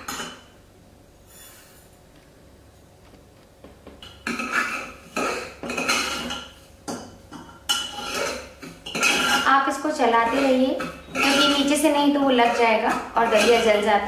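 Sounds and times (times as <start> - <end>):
metal spoon scraping a pot: 1.2 - 1.8, 4.0 - 6.6, 7.3 - 14.0.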